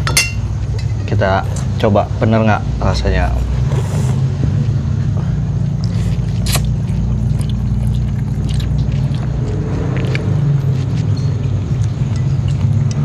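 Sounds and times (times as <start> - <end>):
sharp clink: 0.0 - 1.0
steady low hum: 0.0 - 13.0
people slurping and chewing: 3.4 - 13.0.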